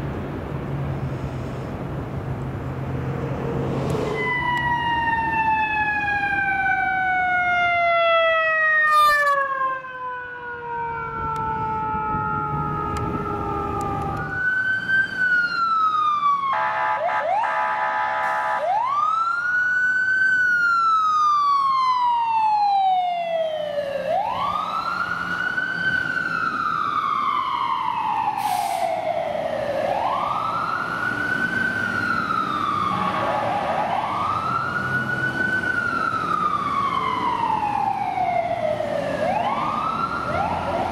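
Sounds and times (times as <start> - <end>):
ambulance wail siren: 3.0 - 40.9
siren winding down: 3.5 - 40.9
vehicle horn blast: 16.6 - 18.6.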